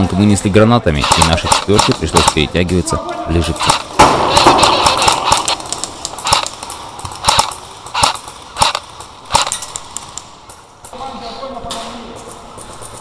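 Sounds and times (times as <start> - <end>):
airsoft gun shots: 1.0 - 2.4, 3.6 - 9.7.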